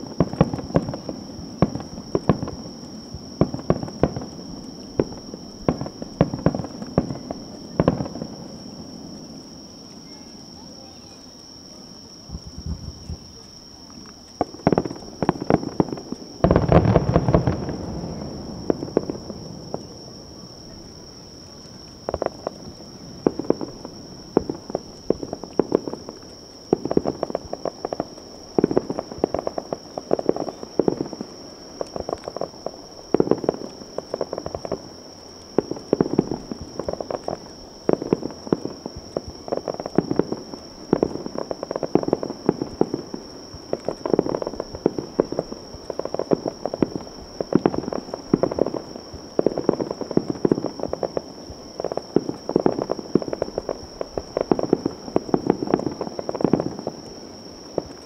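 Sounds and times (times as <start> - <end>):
fireworks crackling: 0.0 - 58.0.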